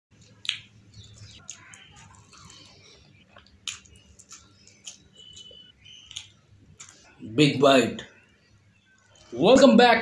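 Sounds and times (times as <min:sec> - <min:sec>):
crunchy chewing: 0:00.2 - 0:07.2.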